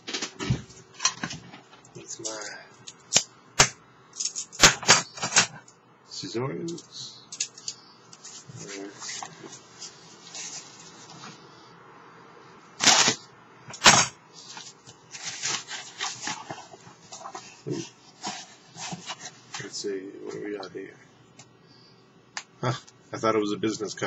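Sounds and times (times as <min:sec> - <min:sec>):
cardboard rustling and scraping: 0:14.5 - 0:19.7.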